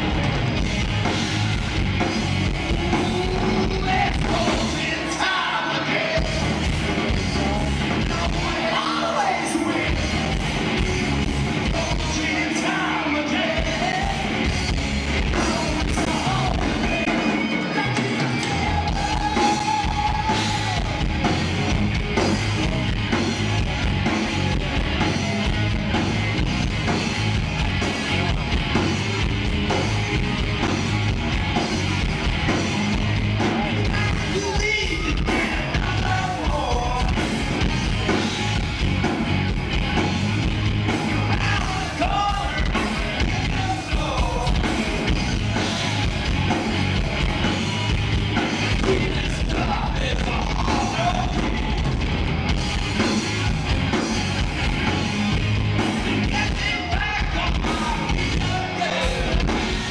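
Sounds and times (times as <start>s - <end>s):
bass guitar: 0.0s - 59.9s
drums: 0.0s - 59.9s
electric guitars: 0.0s - 59.9s
person singing: 2.7s - 14.4s, 15.3s - 21.0s.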